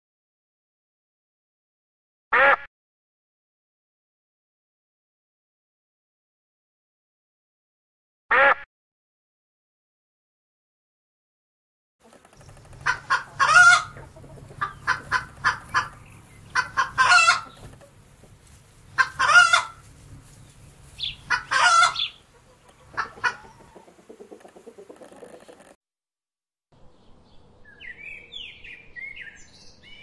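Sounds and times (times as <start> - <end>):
chickens clucking and squawking: 12.0 - 25.8.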